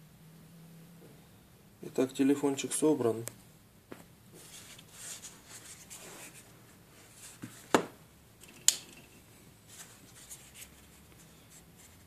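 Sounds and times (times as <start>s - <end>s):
faint rustling of hands: 3.9s - 7.7s, 9.5s - 12.0s.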